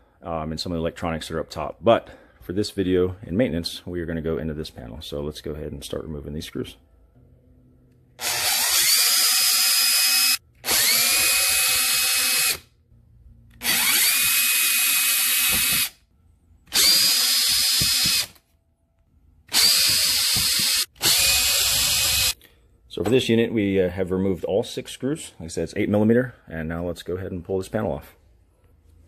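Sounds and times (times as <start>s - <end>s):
cordless drill motor whine: 8.2s - 12.6s, 13.6s - 15.9s, 16.7s - 18.3s, 19.5s - 22.4s.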